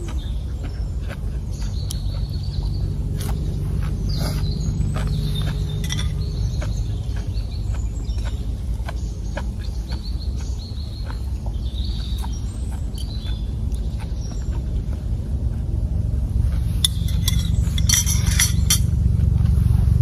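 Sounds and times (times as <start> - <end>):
small birds chirping: 0.0 - 20.0
steady low rumble: 0.0 - 20.0
metal spoons clicking on plates: 5.7 - 6.4, 16.8 - 18.9.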